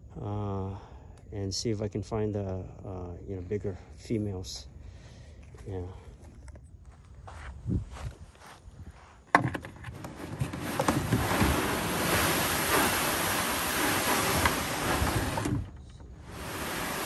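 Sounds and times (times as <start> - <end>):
kayak scraping over sand: 9.4 - 17.0.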